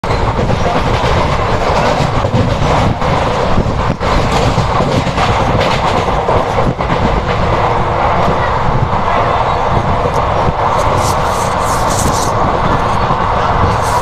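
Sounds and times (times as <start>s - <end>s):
clacks over rail joints: 0.0s - 7.5s
train wheels rumbling on track: 0.0s - 14.0s.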